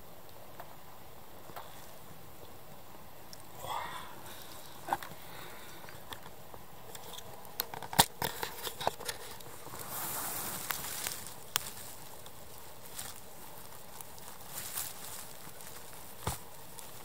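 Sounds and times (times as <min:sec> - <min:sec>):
moss and twigs crackling: 0:00.2 - 0:17.0
twigs snapping and clicking: 0:05.8 - 0:09.5, 0:10.6 - 0:17.0.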